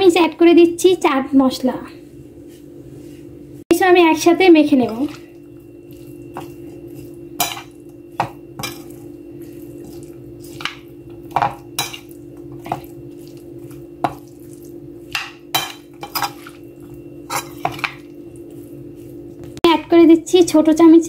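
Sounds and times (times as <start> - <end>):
metal spoon clinking in bowl: 7.4 - 9.0, 10.0 - 12.9, 15.1 - 16.7.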